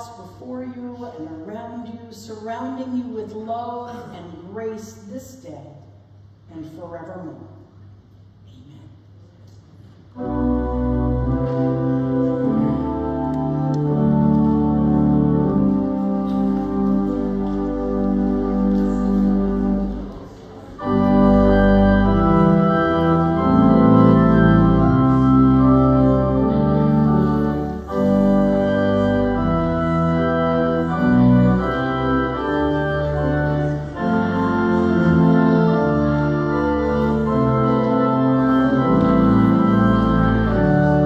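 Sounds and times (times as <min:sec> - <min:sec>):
church organ chords: 0:10.1 - 0:41.0.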